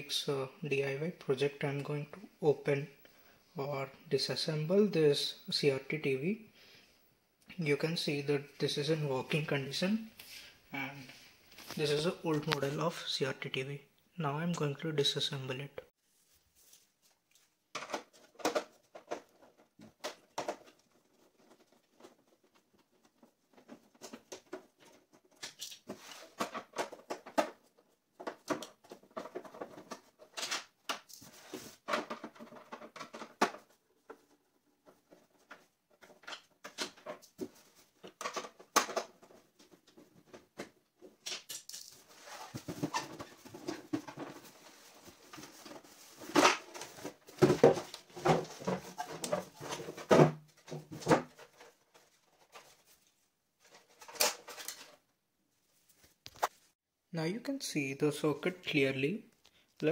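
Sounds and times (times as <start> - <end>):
plastic cover knocking and rattling: 17.7 - 41.4, 42.4 - 52.6.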